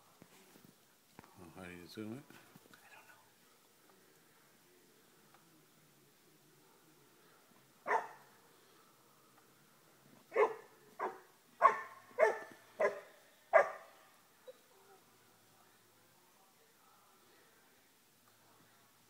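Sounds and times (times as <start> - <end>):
puppy barking: 7.9 - 8.3, 10.3 - 15.0.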